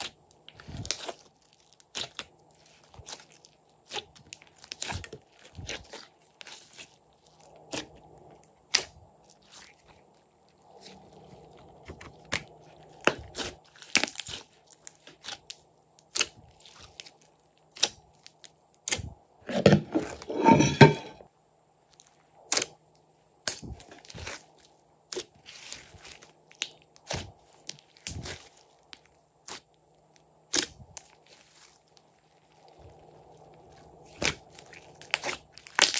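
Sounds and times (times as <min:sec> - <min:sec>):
slime squelching: 0:00.0 - 0:15.5, 0:30.5 - 0:35.9.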